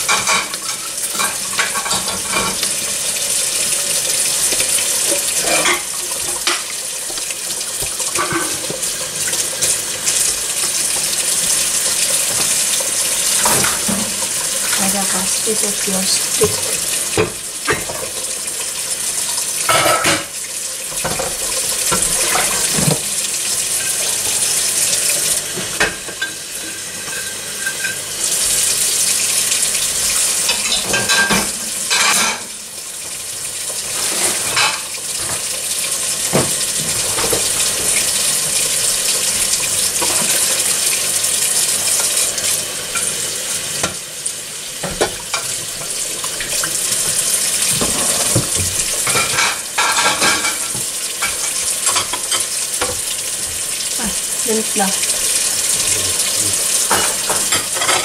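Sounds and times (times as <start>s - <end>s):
dishes and utensils clinking: 0.0s - 2.8s, 4.4s - 11.1s, 12.1s - 18.2s, 19.6s - 23.1s, 25.5s - 28.6s, 30.0s - 32.6s, 33.9s - 35.5s, 36.3s - 38.2s, 40.0s - 40.8s, 44.8s - 53.1s, 56.7s - 58.0s.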